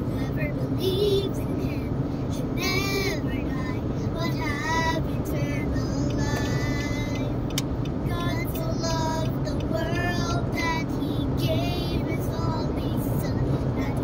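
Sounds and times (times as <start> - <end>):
road and engine rumble: 0.0 - 14.0.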